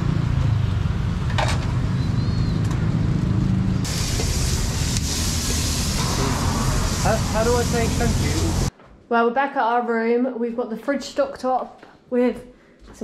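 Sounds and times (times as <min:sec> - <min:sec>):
low rumble of street traffic: 0:00.0 - 0:08.7
bright hiss: 0:03.8 - 0:08.7.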